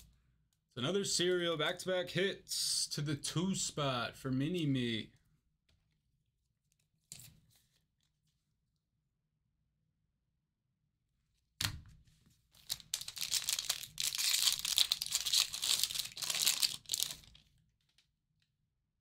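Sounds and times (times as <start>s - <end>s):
wrapper tearing and crinkling: 12.6s - 17.4s
wrapper snapping: 12.6s - 18.0s.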